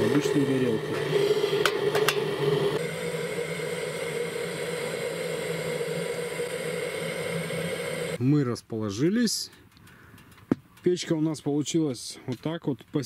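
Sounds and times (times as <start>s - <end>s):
gas torch hissing: 0.0s - 8.2s.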